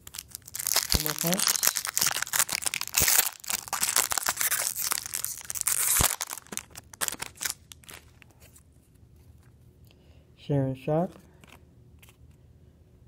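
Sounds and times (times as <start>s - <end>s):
foil wrapper crackling: 0.0s - 8.2s.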